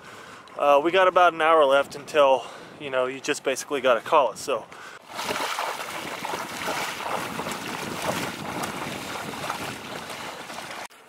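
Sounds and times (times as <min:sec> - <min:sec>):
wading through shallow water: 0:04.8 - 0:11.0.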